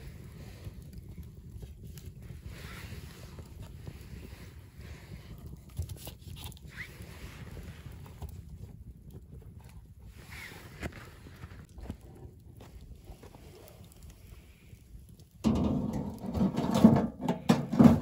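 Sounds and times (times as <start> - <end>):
campfire crackles: 0.0 - 18.0.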